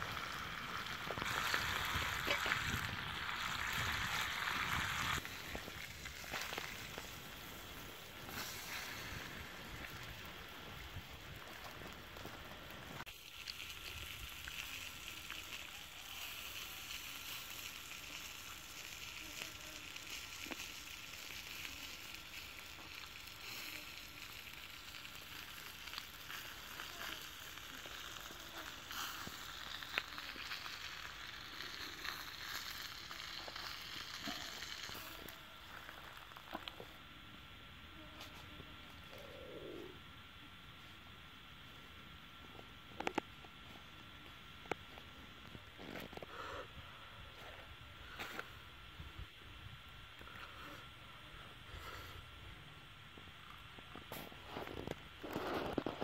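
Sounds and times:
meat sizzling on hot stone: 0.0s - 37.0s
wood fire crackling: 0.0s - 50.9s, 51.6s - 56.0s.

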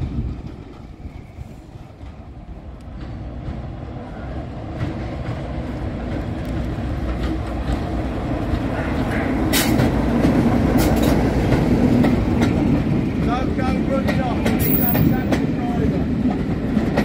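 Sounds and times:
diesel locomotive engine rumble: 0.0s - 17.0s
wheels clicking over rail joints: 4.7s - 17.0s.

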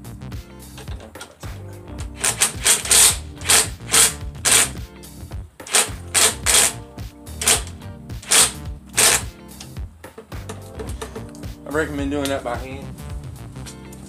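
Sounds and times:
background music: 0.0s - 14.0s
cordless drill driving a screw: 2.1s - 4.8s, 5.7s - 6.8s, 7.4s - 9.3s.

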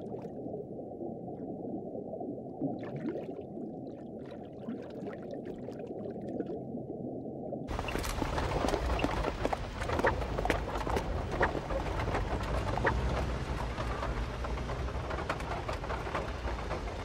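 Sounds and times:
low rumble and hiss: 7.7s - 17.0s.

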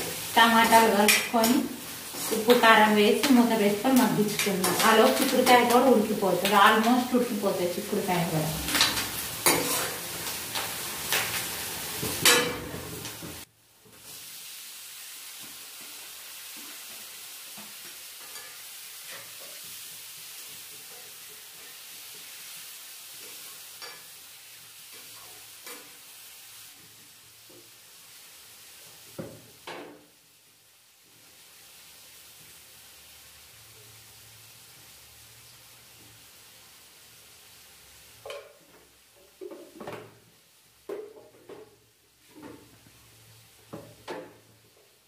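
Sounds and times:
tomatoes sizzling in oil: 0.0s - 45.0s
spatula scraping steel pan: 9.4s - 10.0s.

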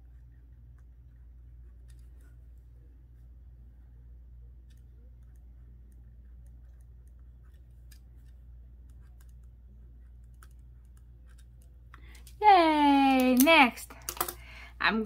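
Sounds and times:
pen scratching on paper: 4.6s - 11.8s.

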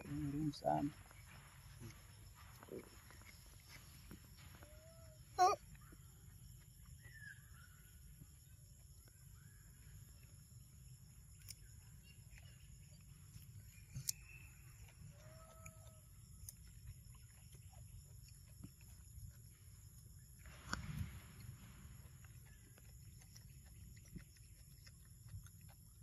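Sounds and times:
faint animal calls: 0.0s - 10.4s, 13.7s - 19.0s.

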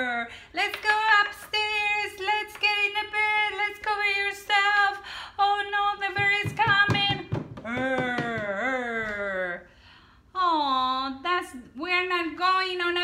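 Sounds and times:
woman singing: 0.0s - 9.1s.

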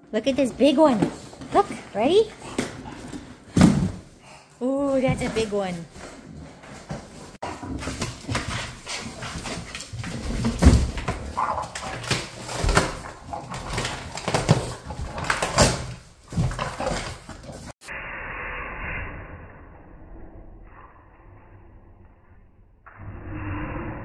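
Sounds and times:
dog tearing cardboard: 7.4s - 17.2s.

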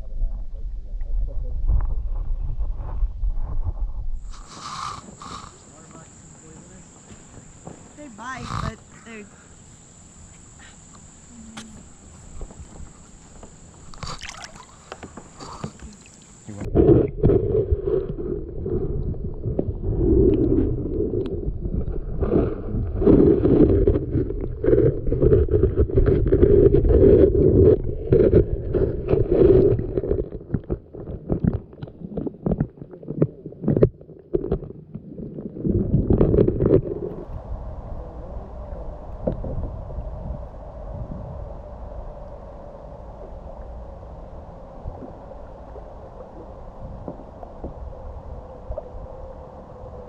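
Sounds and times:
muffled underwater creek gurgling: 0.0s - 50.0s
small underwater knocks and clicks: 11.6s - 18.2s, 23.0s - 37.4s
creek water rushing: 14.0s - 16.7s.

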